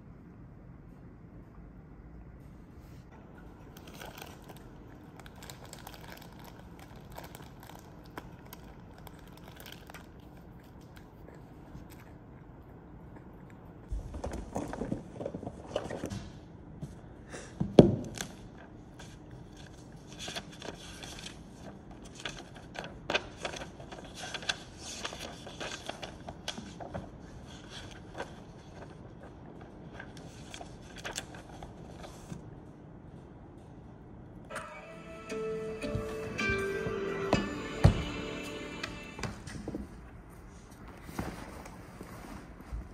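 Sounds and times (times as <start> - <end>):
objects rustling and scraping: 35.8 - 42.9.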